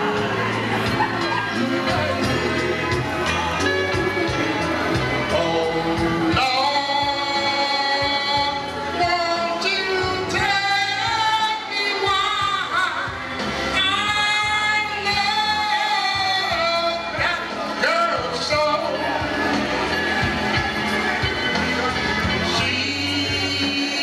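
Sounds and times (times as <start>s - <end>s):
backing music: 0.0s - 24.0s
man singing into a microphone: 5.2s - 19.3s, 22.4s - 24.0s.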